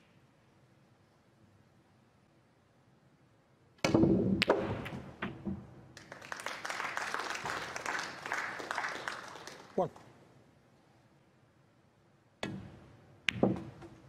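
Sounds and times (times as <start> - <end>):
audience applauding: 6.0 - 10.0
cue striking ball: 12.4 - 14.0
snooker balls clacking: 12.5 - 14.0.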